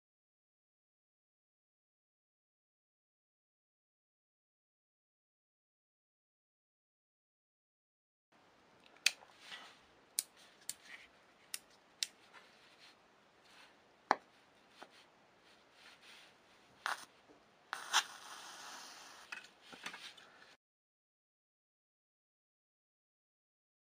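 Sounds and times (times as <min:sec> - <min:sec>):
hissing: 0:17.7 - 0:19.3.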